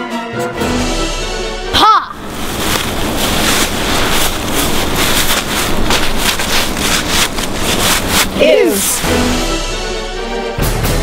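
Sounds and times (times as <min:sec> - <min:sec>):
short crackles: 0:02.2 - 0:09.1.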